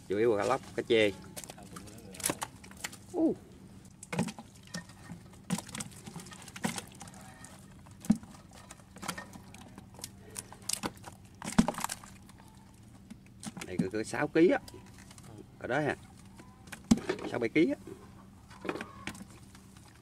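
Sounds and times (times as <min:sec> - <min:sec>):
fish flopping in a plastic tub: 0:00.4 - 0:03.2, 0:03.9 - 0:15.4, 0:18.4 - 0:20.0.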